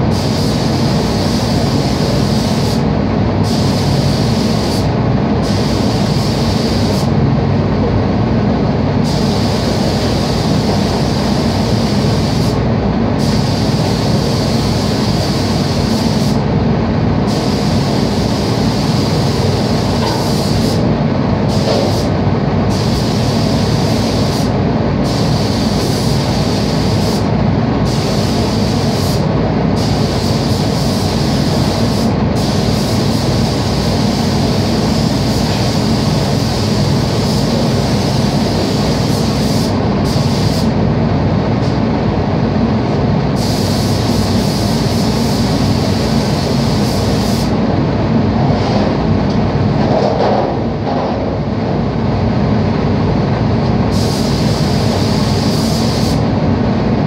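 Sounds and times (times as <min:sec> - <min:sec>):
ventilation fans rushing drone: 0:00.0 - 0:57.0
high air hiss: 0:03.4 - 0:07.1, 0:09.0 - 0:12.6, 0:13.2 - 0:16.4, 0:17.2 - 0:20.9, 0:21.5 - 0:27.3, 0:27.9 - 0:40.7, 0:43.4 - 0:47.6, 0:53.9 - 0:56.3.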